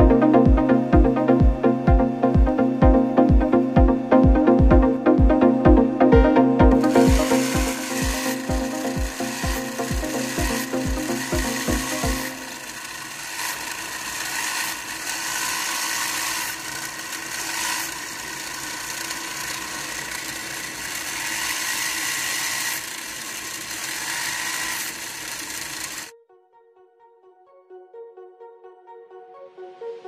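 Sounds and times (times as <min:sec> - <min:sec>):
gear motor whirring: 0:06.7 - 0:26.1.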